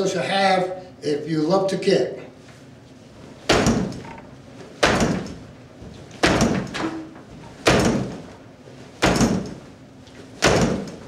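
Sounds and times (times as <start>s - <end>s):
kicks thudding on padded post: 3.4s - 4.0s, 4.8s - 5.4s, 6.2s - 6.8s, 7.6s - 8.3s, 9.0s - 9.6s, 10.4s - 11.0s.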